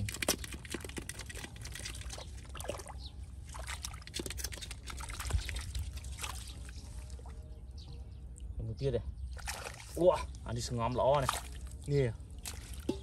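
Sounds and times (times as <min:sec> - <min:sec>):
hands splashing in muddy water: 0:00.0 - 0:07.3, 0:09.3 - 0:10.0, 0:11.2 - 0:11.8, 0:12.4 - 0:13.0.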